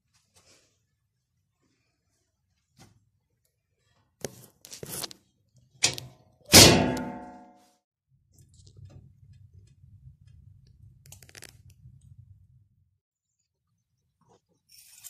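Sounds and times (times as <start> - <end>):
sharp knock: 6.5 - 7.5
ringing metal clang: 6.5 - 7.6.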